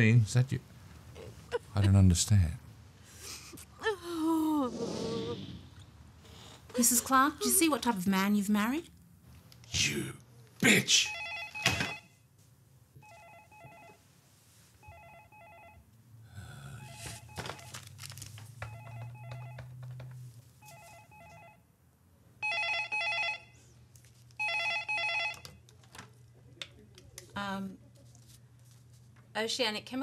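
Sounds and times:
telephone ringing: 11.0 - 12.2, 13.0 - 14.1, 14.8 - 15.9, 16.8 - 17.8, 18.6 - 20.0, 20.6 - 21.7, 22.4 - 23.6, 24.4 - 25.6
rustling: 17.0 - 21.1.

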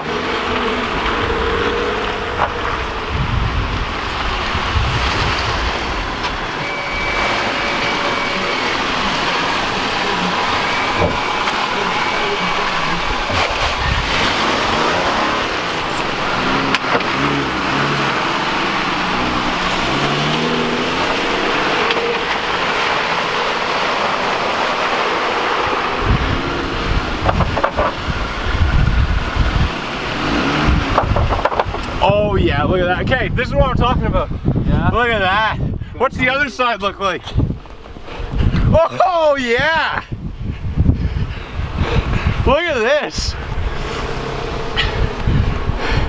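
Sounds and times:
suv engine revving: 0.0 - 32.8, 40.2 - 46.0
tyres through mud: 0.0 - 33.0, 36.3 - 46.0.

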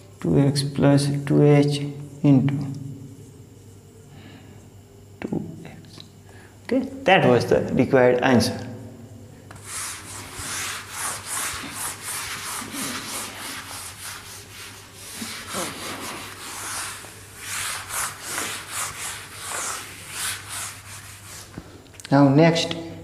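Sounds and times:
eraser scrubbing whiteboard: 9.5 - 21.6.

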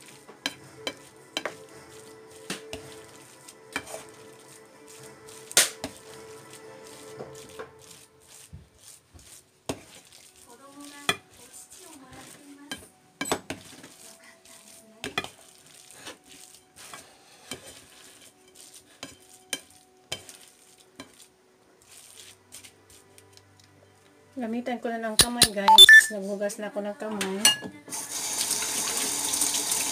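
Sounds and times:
spatula scraping and knocking bowl: 0.0 - 6.2, 6.8 - 11.5, 12.1 - 14.0, 15.0 - 15.4, 16.8 - 21.2
spatula mashing thick mixture: 0.0 - 23.1.

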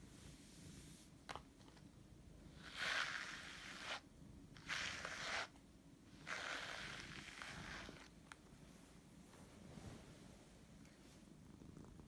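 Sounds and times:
cat fur rustling on microphone: 7.4 - 11.4.

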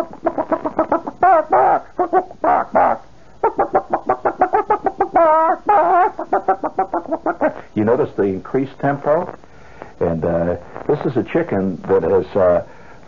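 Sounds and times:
man imitating hen clucking: 0.0 - 7.6.

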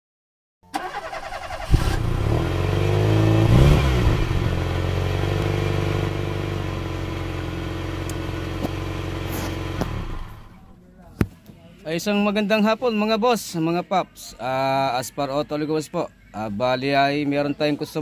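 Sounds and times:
engine cranking revving and idling: 0.8 - 10.6.

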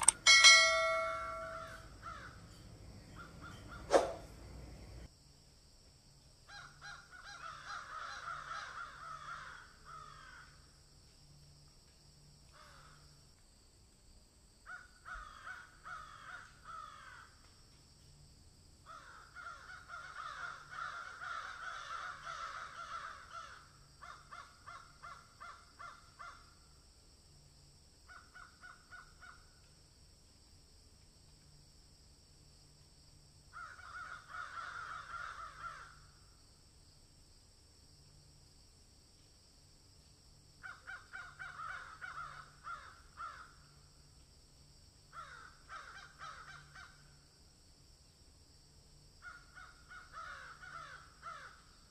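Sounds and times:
birds calling harshly: 0.0 - 5.1.

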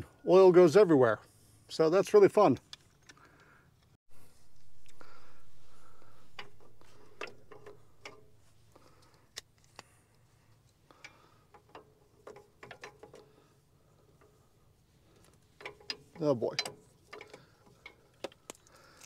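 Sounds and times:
low rumble: 4.1 - 8.5
hand tools clicking and tapping: 6.0 - 9.5, 10.9 - 13.5, 15.1 - 18.7.

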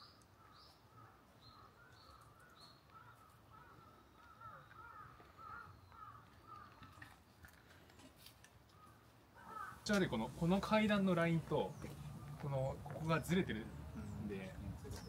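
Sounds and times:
faint bird calls: 0.0 - 7.2, 8.7 - 9.9.

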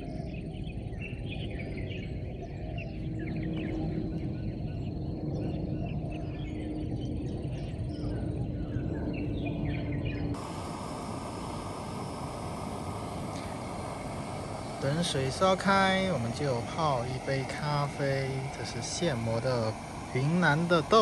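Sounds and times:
wild birds chirping: 0.0 - 21.0
low background rumble: 10.4 - 21.0
steady hiss: 10.4 - 21.0.

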